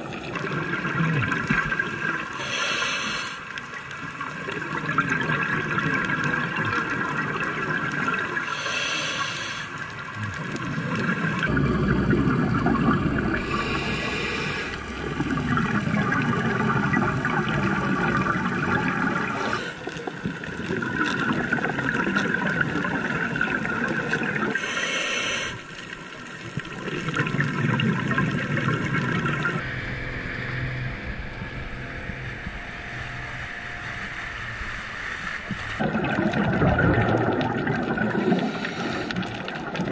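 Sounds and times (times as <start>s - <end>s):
gurgling exhaled bubbles: 0.0s - 29.6s, 35.3s - 39.9s
regulator inhale hiss: 2.4s - 3.5s, 8.4s - 9.8s, 13.4s - 15.0s, 24.6s - 25.7s, 38.2s - 39.3s.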